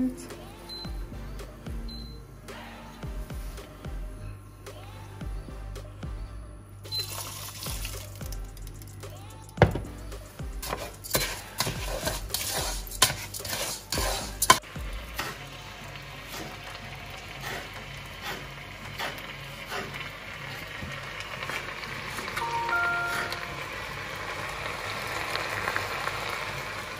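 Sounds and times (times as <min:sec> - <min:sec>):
rice sizzling in oil: 0:06.9 - 0:09.1, 0:10.2 - 0:26.9.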